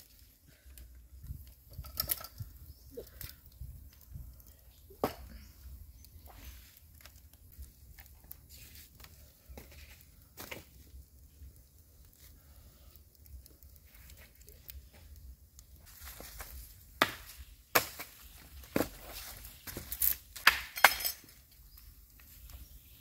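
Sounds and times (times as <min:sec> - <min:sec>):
dry leaves crackling and rustling: 0:13.8 - 0:20.4.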